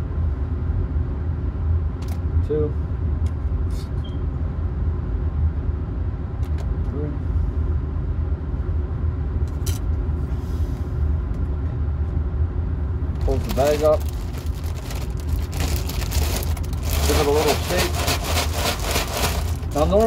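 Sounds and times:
electric blower humming: 16.9 - 19.8.

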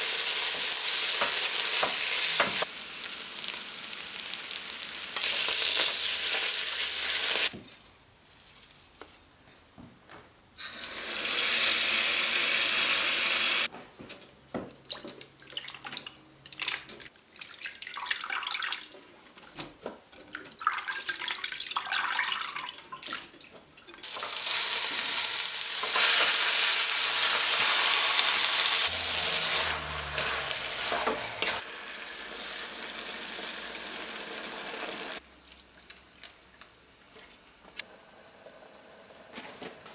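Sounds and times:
onions sizzling in a wok: 0.0 - 7.5, 10.6 - 13.7, 24.0 - 35.2
water poured into a pot: 17.4 - 19.0, 20.4 - 23.2.

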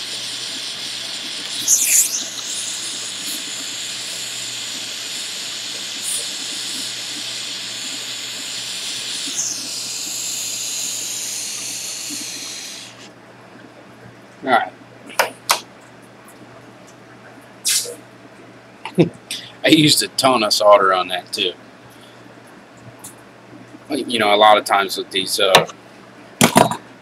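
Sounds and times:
gas torch flame hissing: 0.0 - 13.1, 17.6 - 18.0.

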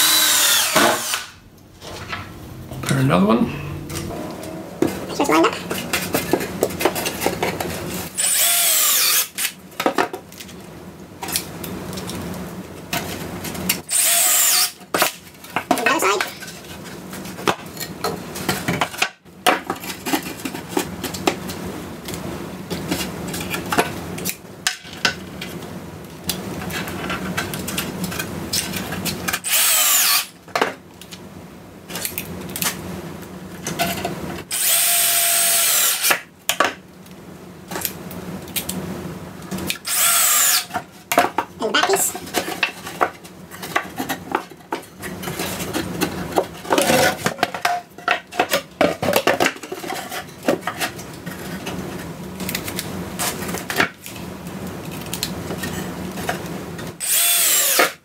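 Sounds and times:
cordless drill driving screws: 0.0 - 1.3, 8.2 - 9.4, 13.9 - 14.8, 29.4 - 30.3, 34.5 - 36.1, 39.8 - 40.7, 57.0 - 57.9.

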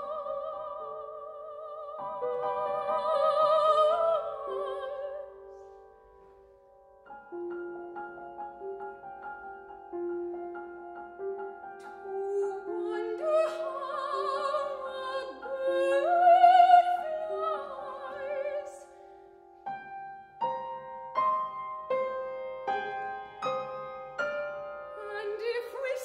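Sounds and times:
woman singing opera: 0.0 - 5.7, 11.8 - 19.1, 25.0 - 26.0
grand piano: 0.0 - 26.0.

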